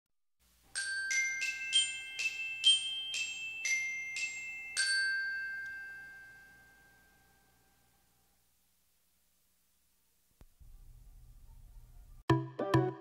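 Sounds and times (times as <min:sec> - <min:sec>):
glockenspiel-like jingle: 0:00.7 - 0:07.6.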